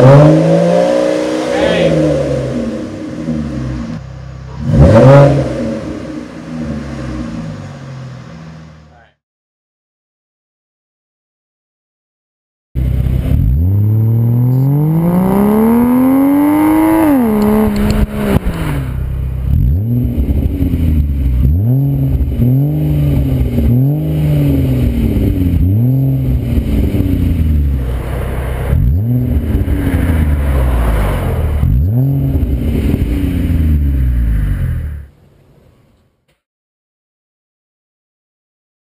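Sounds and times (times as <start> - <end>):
car engine revving: 0.0 - 9.0, 12.8 - 35.3.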